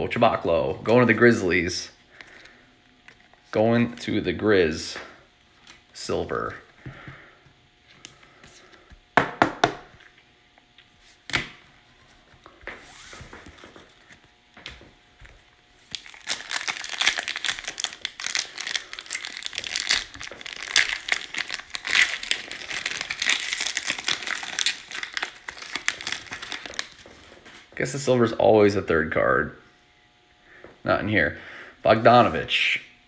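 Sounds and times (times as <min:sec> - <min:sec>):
foil wrapper crinkling: 0:15.8 - 0:27.4.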